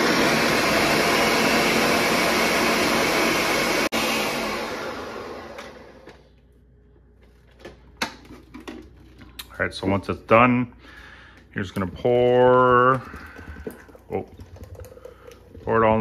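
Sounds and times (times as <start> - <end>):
blender running: 0.0 - 6.2.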